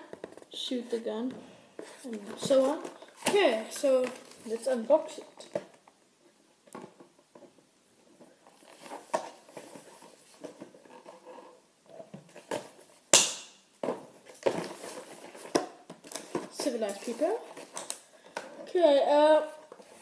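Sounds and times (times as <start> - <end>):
packaging rustling and crinkling: 1.8 - 5.9, 6.8 - 13.0, 13.8 - 18.7.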